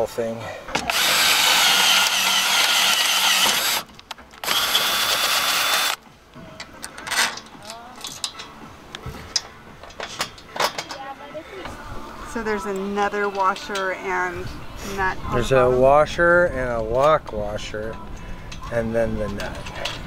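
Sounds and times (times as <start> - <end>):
power drill drilling into metal: 0.9 - 6.0.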